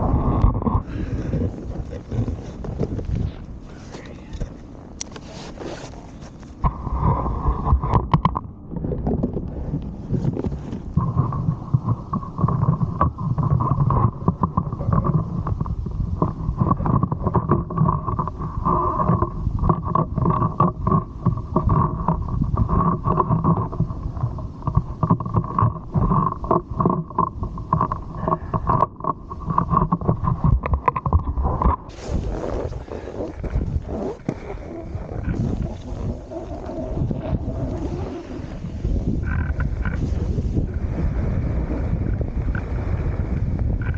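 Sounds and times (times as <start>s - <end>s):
snowboard scraping over snow: 0.0s - 8.0s, 9.1s - 28.6s, 29.3s - 43.9s
wind buffeting microphone: 0.0s - 43.9s.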